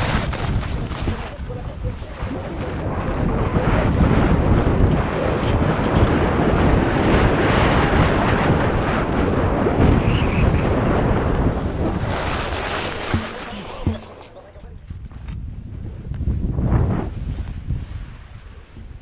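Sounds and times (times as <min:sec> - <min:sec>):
skis running over packed snow: 0:00.0 - 0:14.6
wind rushing over microphone: 0:00.0 - 0:19.0.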